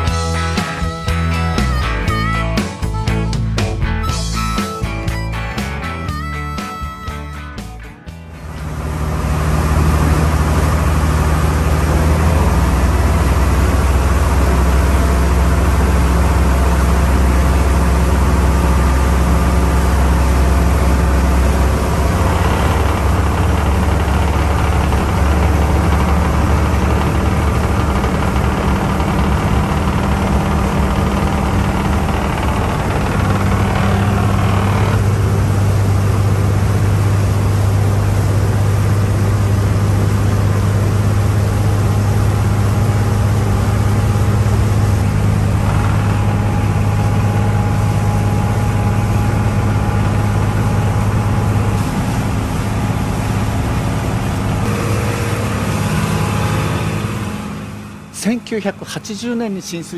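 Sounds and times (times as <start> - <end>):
diesel boat engine running: 0.0 - 59.9
water rushing along hull: 8.6 - 58.4.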